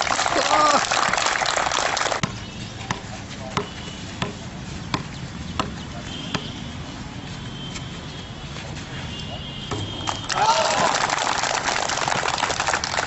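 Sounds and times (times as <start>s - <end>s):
ball tapping on hard court: 2.2s - 6.5s, 9.7s - 10.3s.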